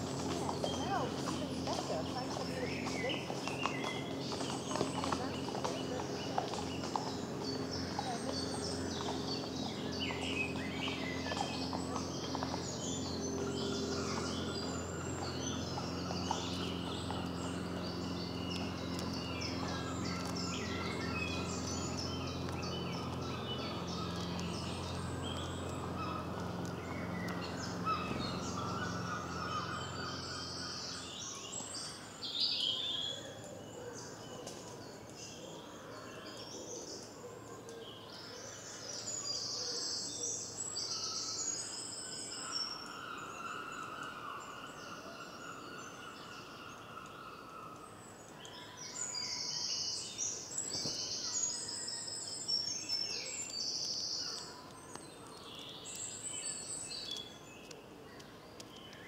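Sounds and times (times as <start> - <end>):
low steady hum: 0.0 - 39.3
songbirds chirping and trilling: 0.0 - 59.0.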